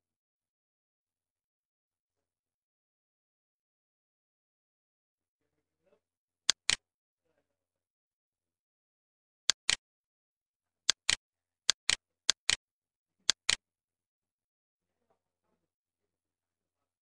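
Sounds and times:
computer mouse button clicking: 0:06.5 - 0:06.8, 0:09.5 - 0:09.8, 0:10.9 - 0:12.6, 0:13.3 - 0:13.6.

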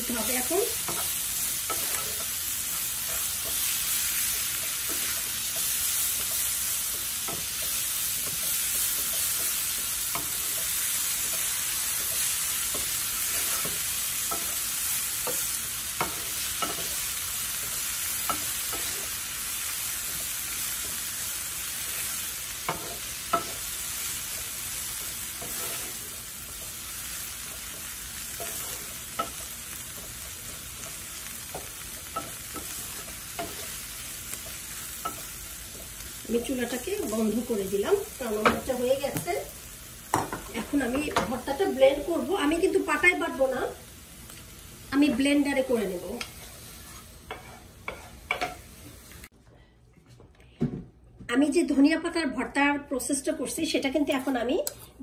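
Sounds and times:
vegetables sizzling in oil: 0:00.0 - 0:49.3
wooden spatula scraping pan: 0:25.0 - 0:26.8, 0:27.5 - 0:31.0, 0:46.3 - 0:48.6.

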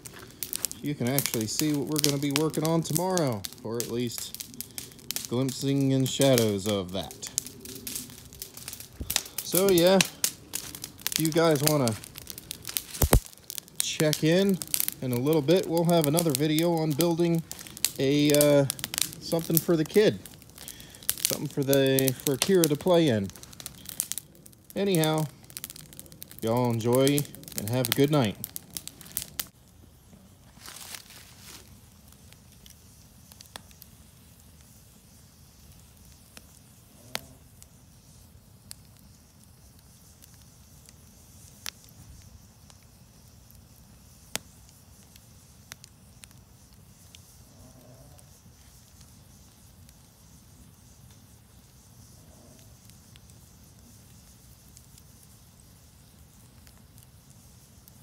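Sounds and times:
burning logs crackling: 0:00.0 - 0:58.0
campfire flames rushing: 0:00.0 - 0:58.0
low steady fire rumble: 0:00.0 - 0:58.0
rustling hiss: 0:00.0 - 0:58.0.

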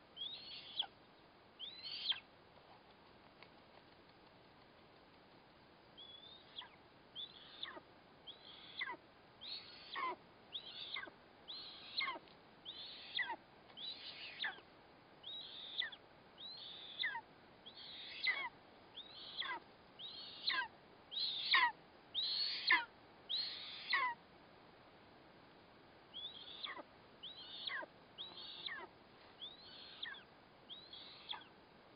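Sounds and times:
eagle chick begging calls: 0:00.2 - 0:00.9, 0:01.6 - 0:02.2, 0:06.0 - 0:24.2, 0:26.1 - 0:31.5.

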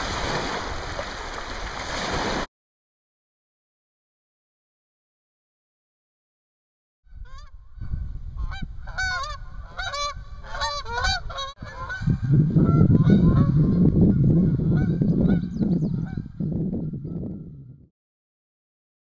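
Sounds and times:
geese honking: 0:08.4 - 0:13.8, 0:14.4 - 0:16.2.

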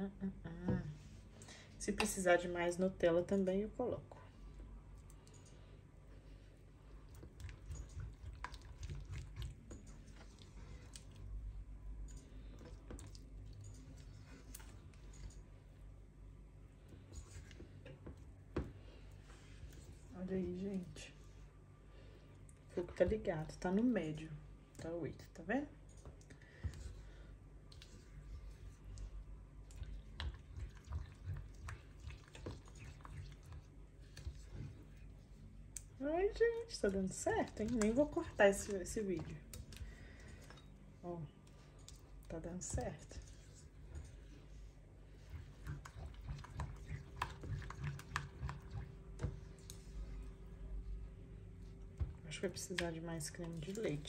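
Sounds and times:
wet squishing of stirring: 0:04.2 - 0:23.7, 0:26.0 - 0:54.0
spatula stirring in a saucepan: 0:27.8 - 0:40.7, 0:41.4 - 0:50.5.

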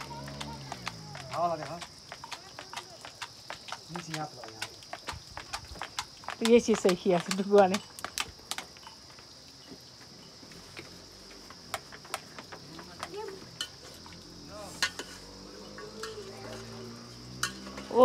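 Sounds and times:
high-pitched insect drone: 0:13.4 - 0:18.0
metal spoon stirring in steel pot: 0:14.8 - 0:15.3, 0:15.9 - 0:16.7.

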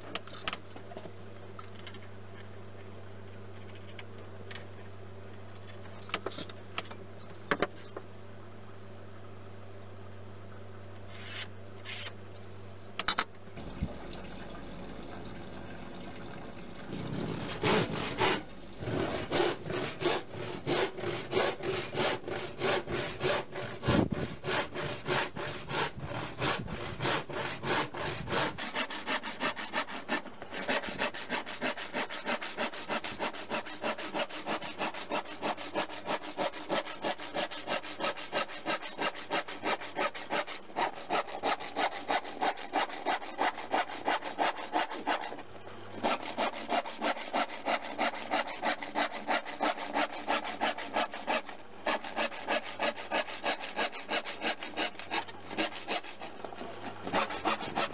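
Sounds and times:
hand saw cutting board: 0:11.1 - 0:12.2, 0:17.2 - 0:57.9.

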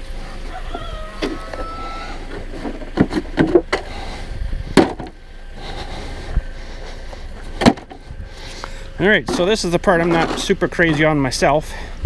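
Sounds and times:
car ramps knocking and clattering: 0:02.3 - 0:04.0, 0:04.7 - 0:05.2, 0:07.4 - 0:08.0, 0:09.2 - 0:11.2.

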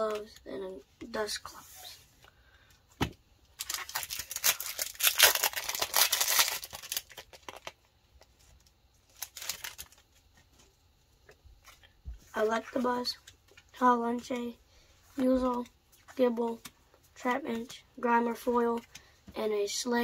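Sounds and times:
foil wrapper tearing and crinkling: 0:03.6 - 0:07.9, 0:09.1 - 0:10.1.

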